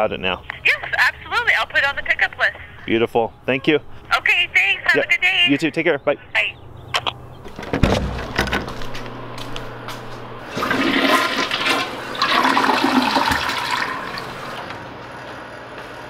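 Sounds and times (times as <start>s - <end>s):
toilet flushing: 10.4s - 14.8s.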